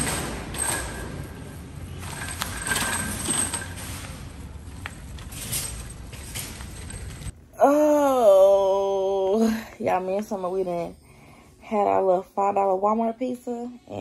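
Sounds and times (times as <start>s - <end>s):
shopping cart rattling on pavement: 0.0s - 7.3s.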